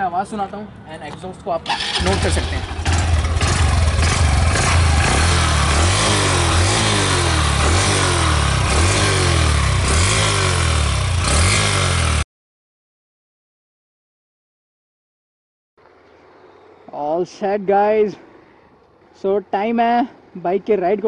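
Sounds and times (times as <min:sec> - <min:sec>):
motorcycle engine throttle blips: 0:01.7 - 0:11.6.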